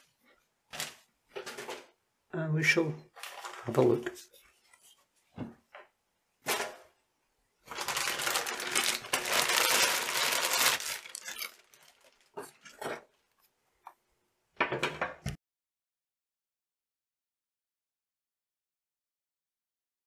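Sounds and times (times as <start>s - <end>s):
plastic packaging crinkling: 0.7s - 1.0s, 7.7s - 13.0s
handling noises: 7.7s - 13.1s.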